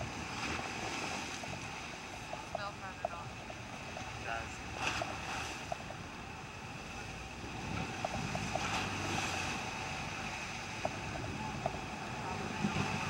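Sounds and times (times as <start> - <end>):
water washing against hull: 0.0 - 13.0.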